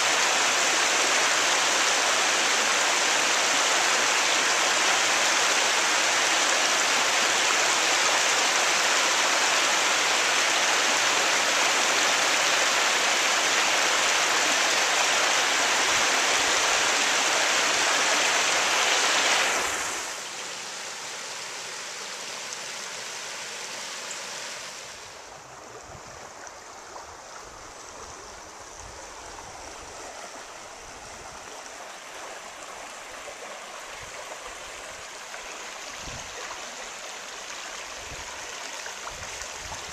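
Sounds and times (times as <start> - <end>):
water rushing over waterfall: 0.0 - 26.4
shallow water rushing over rocks: 0.0 - 39.9.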